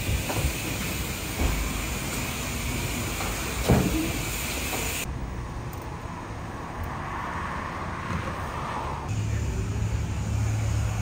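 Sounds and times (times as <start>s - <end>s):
vehicle noise: 0.0s - 11.0s
low engine hum: 8.2s - 11.0s.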